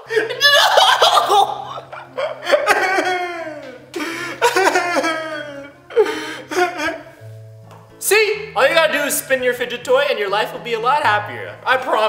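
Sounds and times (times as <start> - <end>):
man laughing: 0.0 - 7.0.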